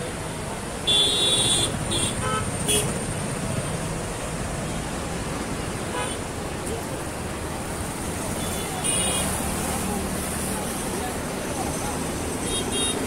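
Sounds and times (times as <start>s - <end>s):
road traffic rumble: 0.0s - 13.0s
vehicle horn honking: 0.9s - 2.9s.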